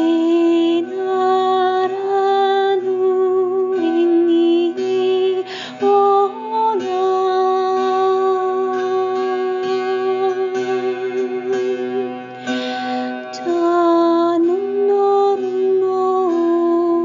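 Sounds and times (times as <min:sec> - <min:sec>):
woman singing wordless notes: 0:00.0 - 0:17.0
breath: 0:05.4 - 0:05.8, 0:12.3 - 0:13.3.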